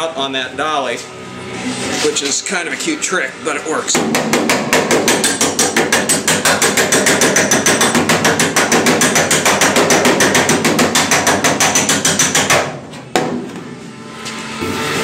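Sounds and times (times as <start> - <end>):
air hammer rapping on steel panel: 3.9 - 12.7.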